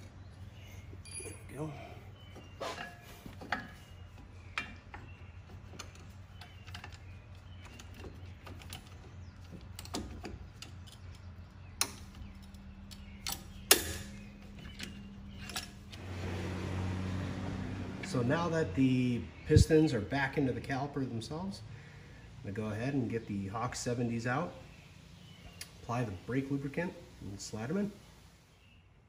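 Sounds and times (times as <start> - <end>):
metal tool clinking on brake caliper: 1.0 - 1.6, 11.8 - 15.9
sharp metal knocks: 13.2 - 14.2.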